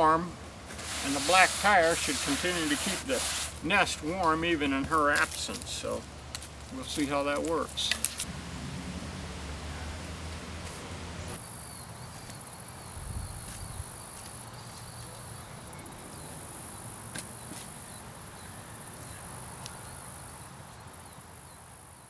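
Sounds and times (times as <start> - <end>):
crickets chirring: 11.4 - 22.0.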